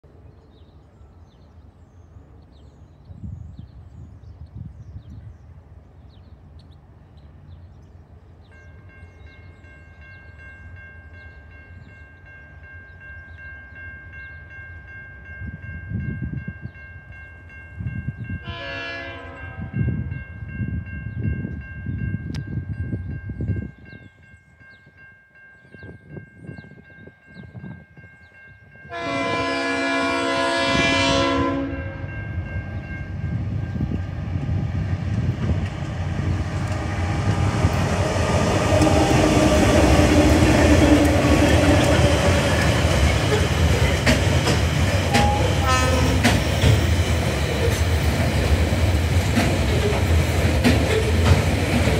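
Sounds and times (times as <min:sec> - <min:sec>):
crossing warning bells ringing: 0:08.3 - 0:51.9
train horn blasts: 0:18.4 - 0:20.1, 0:28.8 - 0:34.0, 0:36.7 - 0:43.8, 0:45.1 - 0:46.4
diesel engines rumbling: 0:33.1 - 0:51.9.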